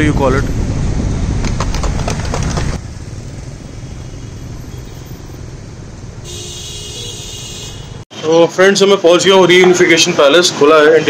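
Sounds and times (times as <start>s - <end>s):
street traffic noise: 0.0s - 11.0s.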